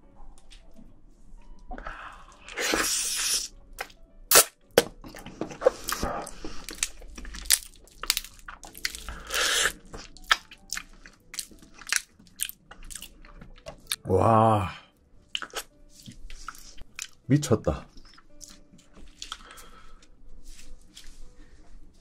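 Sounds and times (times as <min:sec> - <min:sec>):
slurping sucks: 0:02.3 - 0:03.6, 0:09.2 - 0:09.9
crab shell crunching: 0:05.5 - 0:14.1.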